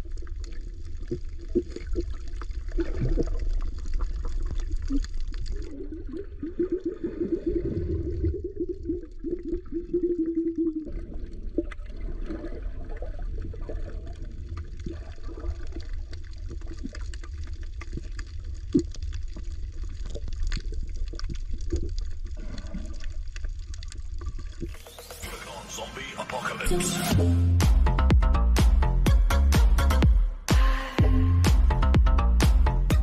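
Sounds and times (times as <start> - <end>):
muffled underwater rumble of seawater: 0.0 - 24.6
underwater bubbling: 0.0 - 24.8.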